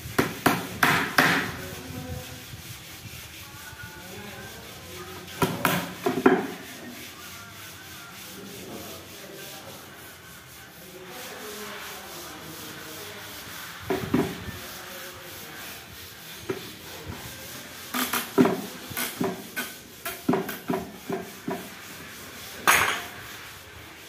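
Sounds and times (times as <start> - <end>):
rubbing scraping on wood: 0.0 - 24.0
hammer striking chisel: 0.2 - 1.5.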